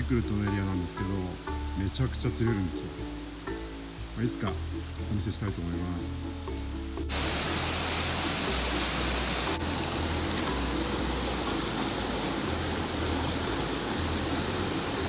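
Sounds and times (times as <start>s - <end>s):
stream rushing over rocks: 7.1s - 15.0s.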